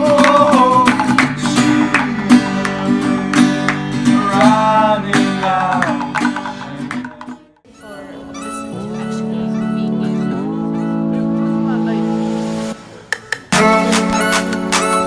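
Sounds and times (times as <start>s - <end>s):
young men singing together: 0.0s - 7.2s
acoustic guitar strumming: 0.0s - 15.0s.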